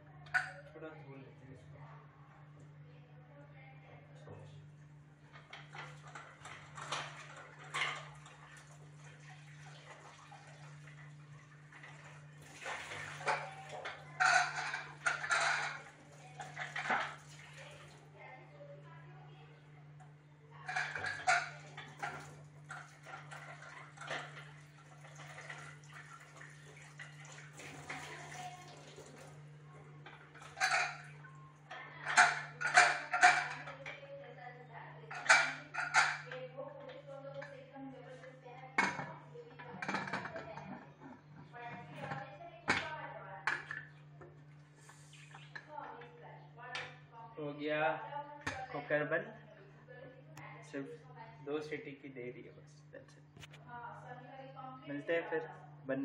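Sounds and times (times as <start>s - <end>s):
kitchen tap running: 5.3s - 18.2s, 20.6s - 33.9s, 35.1s - 36.4s, 37.4s - 46.1s
water splashing: 7.2s - 13.8s, 21.9s - 29.4s.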